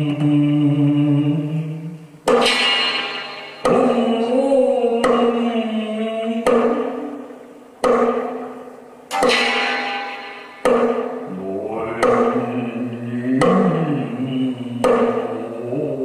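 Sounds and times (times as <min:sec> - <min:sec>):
chant-like vocal drone: 0:00.0 - 0:02.0, 0:03.6 - 0:07.1, 0:11.3 - 0:16.0
wooden sticks knocking: 0:02.3 - 0:04.2, 0:04.9 - 0:05.6, 0:06.4 - 0:07.1, 0:07.8 - 0:14.0, 0:14.8 - 0:15.5.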